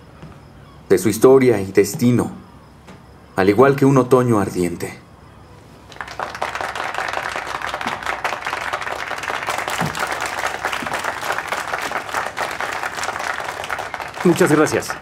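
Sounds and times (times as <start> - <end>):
crowd applause: 5.9 - 15.0.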